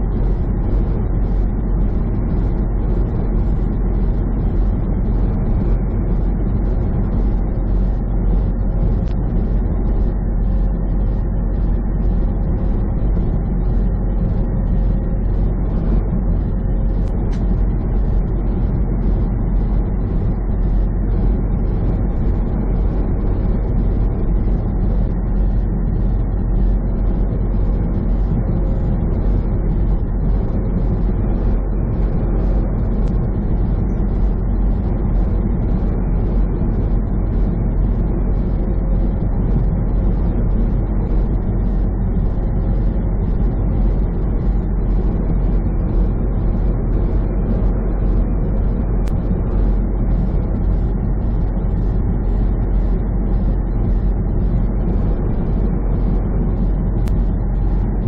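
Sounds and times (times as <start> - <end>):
truck engine drone: 0.0 - 58.0.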